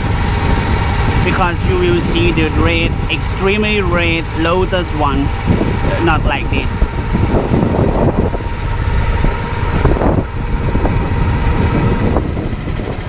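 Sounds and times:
boat motor running: 0.0 - 13.0.

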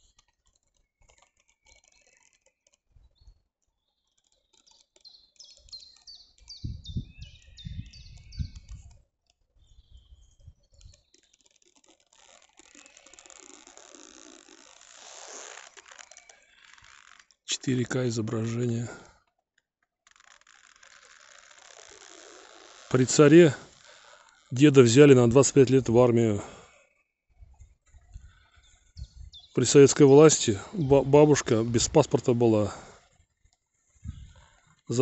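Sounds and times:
songbird singing: 3.0 - 9.0, 9.6 - 11.6, 22.0 - 27.0, 28.5 - 32.8
rustling: 10.2 - 17.5, 20.0 - 26.8.

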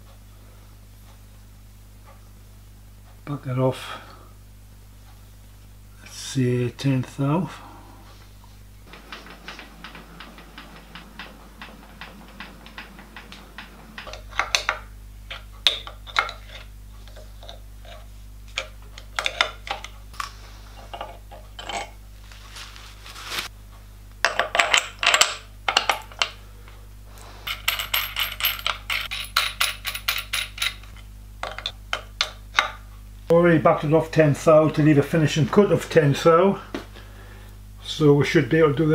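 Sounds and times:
low electric hum: 0.0 - 38.9
metal chips clinking and scraping: 20.8 - 22.0, 27.4 - 31.7.

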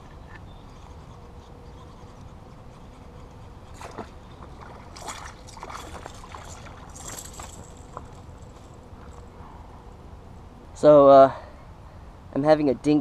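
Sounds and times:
fish splashing at water surface: 3.8 - 8.4.

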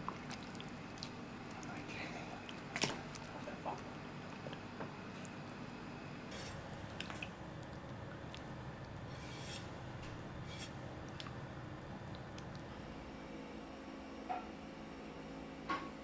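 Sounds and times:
blade scraping: 9.1 - 9.7.

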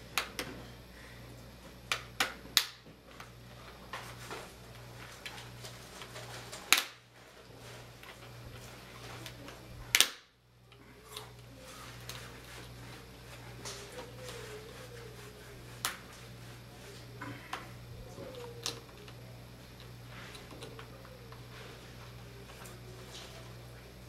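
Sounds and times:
plastic clips snapping loose: 9.9 - 10.3.

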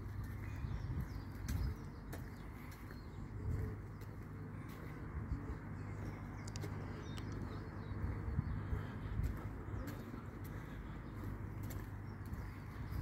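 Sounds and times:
steady low rumble: 0.0 - 13.0
faint clicks: 6.4 - 7.5.

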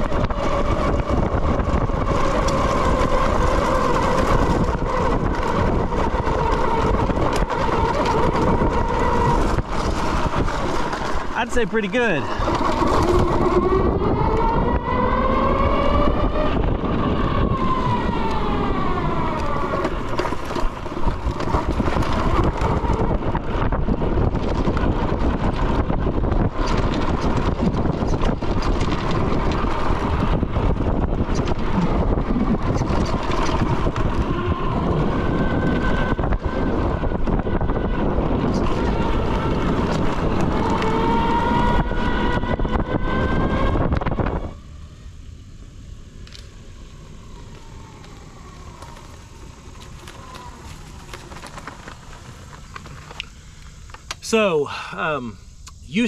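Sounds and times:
electric motor whine: 0.0 - 54.5
wind noise: 0.0 - 56.0.

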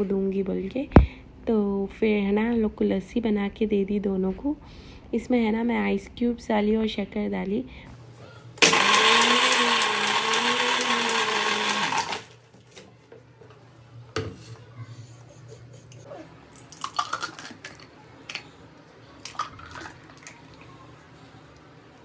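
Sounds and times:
mixer grinder running: 8.6 - 12.4.

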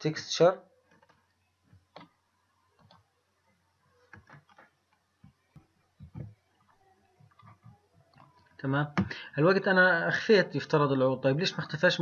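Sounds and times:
computer mouse and keyboard clicks: 0.8 - 2.2, 4.0 - 8.6.

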